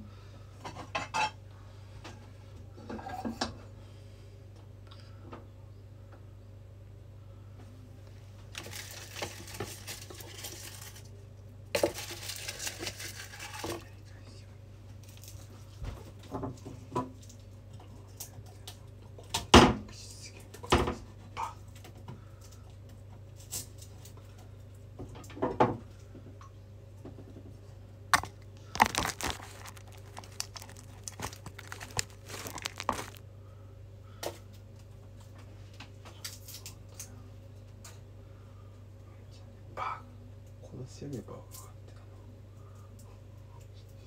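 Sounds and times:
steady low hum: 0.0 - 44.0
rustling and crinkling: 8.4 - 11.1, 11.8 - 13.9, 28.2 - 33.2.

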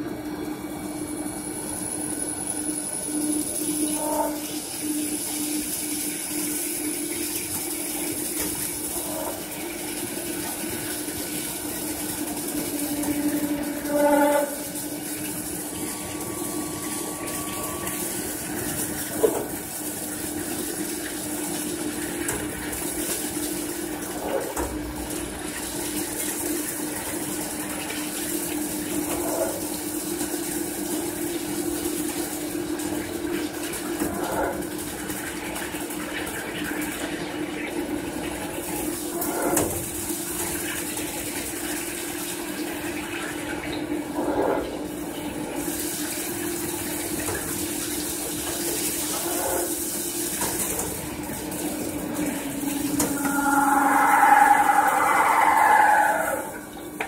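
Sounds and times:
drilling machine spindle hum: 0.0 - 23.4, 51.0 - 57.0.

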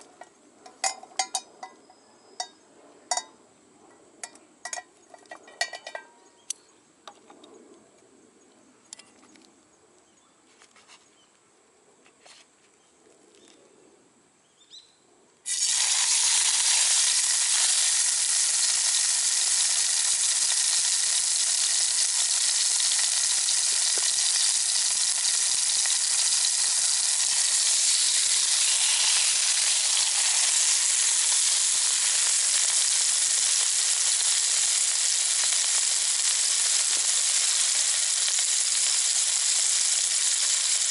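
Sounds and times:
steak sizzling in hot oil: 15.5 - 40.9.

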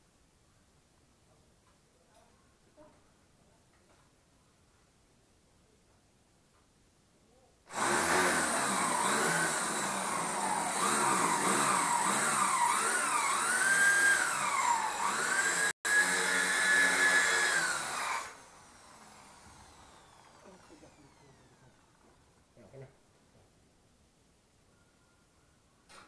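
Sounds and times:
electric drill drilling into wall: 7.7 - 22.1.

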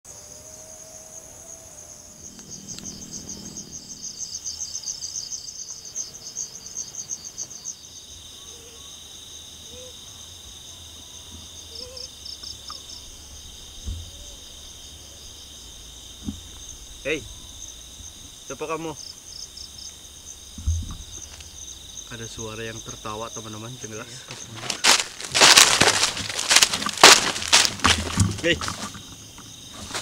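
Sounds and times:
fast pulsing insect trill: 0.1 - 30.0
insects chirping: 0.1 - 30.0
brief thump: 20.6 - 21.5.

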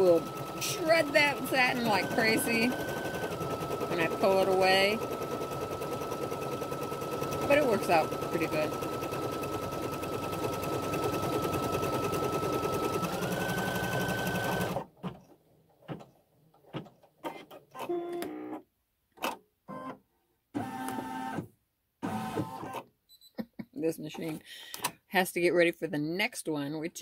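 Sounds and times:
embroidery machine stitching: 0.0 - 14.9.

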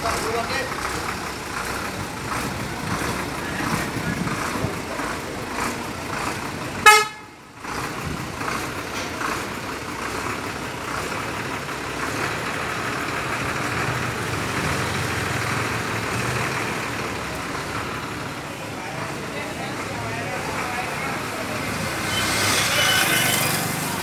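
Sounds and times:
engine and road traffic noise: 0.0 - 24.0
vehicle horn toot: 6.8 - 7.4, 22.1 - 23.6.

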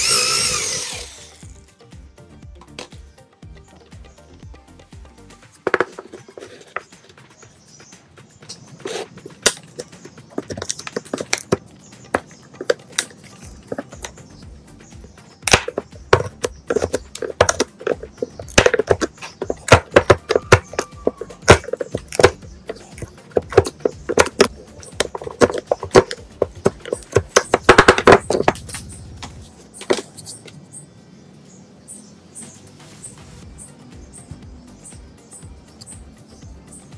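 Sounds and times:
sharp knocks on wood: 15.4 - 28.6.

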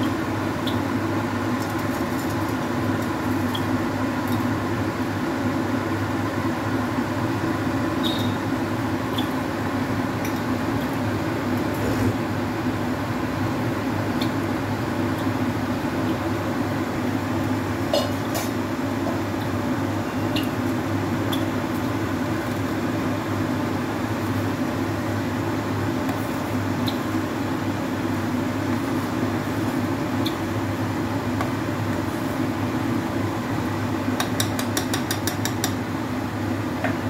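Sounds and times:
kitchen hum: 0.0 - 37.0
spoon clinking against pot: 34.2 - 35.8.

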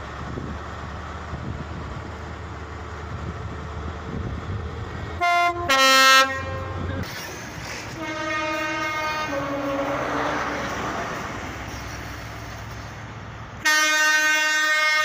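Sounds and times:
diesel train passing: 0.0 - 15.0
two-note train horn: 5.2 - 7.0, 8.0 - 10.6, 13.6 - 15.0
long train horn blast: 5.2 - 7.1, 7.8 - 11.2, 13.6 - 15.0.

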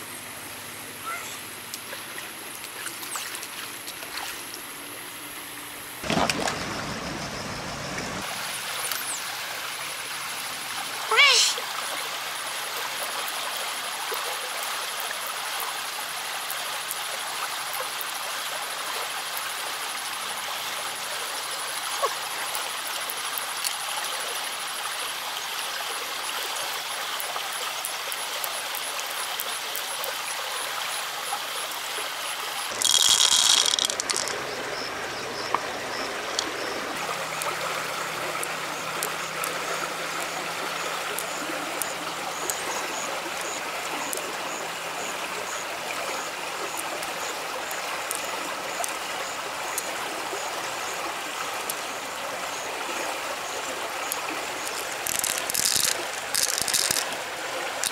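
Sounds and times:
river water rushing: 31.7 - 57.9
faint clicks: 54.1 - 57.2.

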